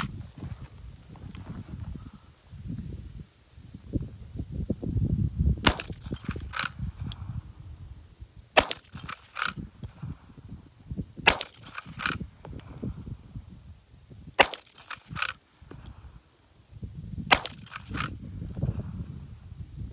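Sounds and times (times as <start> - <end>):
rifle shots: 5.6 - 6.8, 8.6 - 9.6, 11.2 - 12.3, 14.4 - 15.4, 17.3 - 18.2
rifle lever clacking: 5.7 - 6.7, 8.7 - 9.6, 11.3 - 12.2, 14.7 - 15.4.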